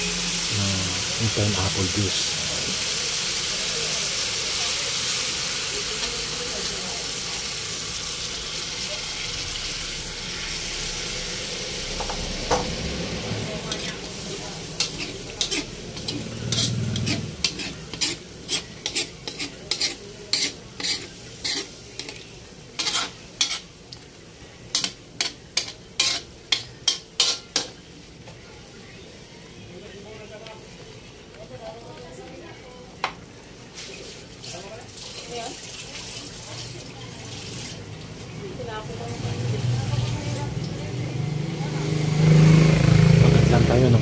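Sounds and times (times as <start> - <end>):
metal utensil scraping wok: 0.0 - 24.1, 24.7 - 27.8
chicken sizzling in wok: 0.0 - 44.0.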